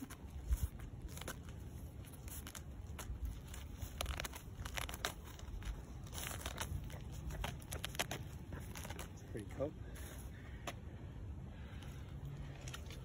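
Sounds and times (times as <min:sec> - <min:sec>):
animal digging in gravelly soil: 0:00.0 - 0:10.3.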